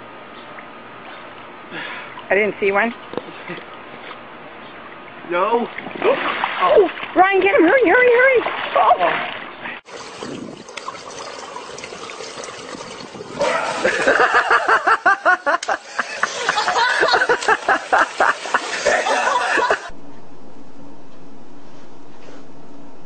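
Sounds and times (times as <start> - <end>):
steady low hum: 9.3 - 23.0
person laughing hard: 13.4 - 19.9.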